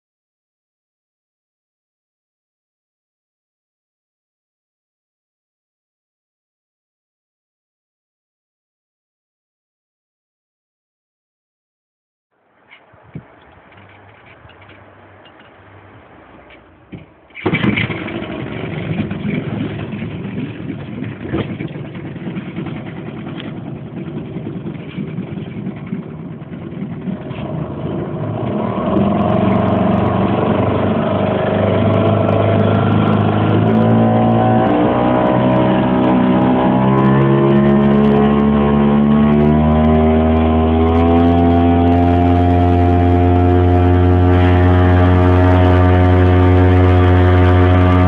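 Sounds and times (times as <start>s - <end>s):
outboard motor running: 13.2s - 48.0s.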